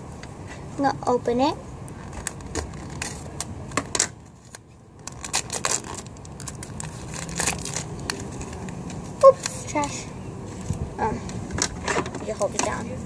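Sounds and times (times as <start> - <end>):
plastic wrapping crinkling and tearing: 1.9 - 3.5, 4.4 - 9.9.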